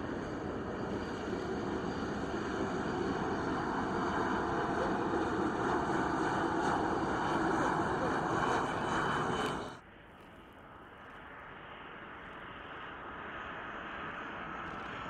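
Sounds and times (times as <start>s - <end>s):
jet airliner roar: 0.0s - 9.8s, 11.3s - 15.0s
jet engines whining: 0.0s - 9.8s.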